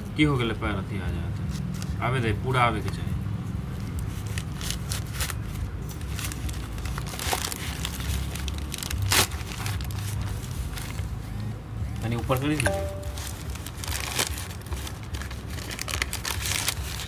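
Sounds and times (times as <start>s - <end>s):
plastic bag crinkling and tearing: 4.0s - 11.2s, 13.2s - 17.0s
loud plastic rip: 7.0s - 10.0s, 13.6s - 17.0s.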